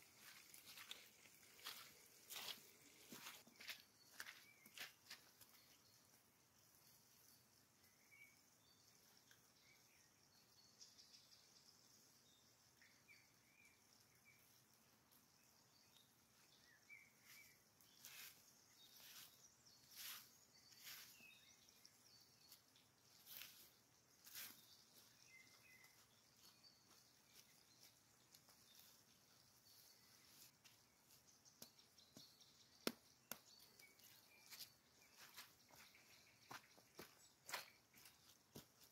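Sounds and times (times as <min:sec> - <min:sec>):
small birds chirping: 0:00.0 - 0:38.9
hand shovel scraping soil: 0:18.0 - 0:21.4.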